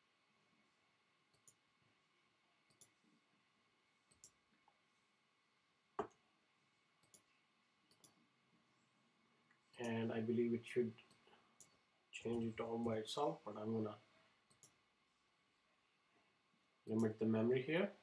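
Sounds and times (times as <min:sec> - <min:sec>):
computer mouse clicks: 0:01.3 - 0:01.6, 0:02.6 - 0:03.0, 0:04.1 - 0:04.5, 0:07.0 - 0:08.2, 0:14.4 - 0:14.8.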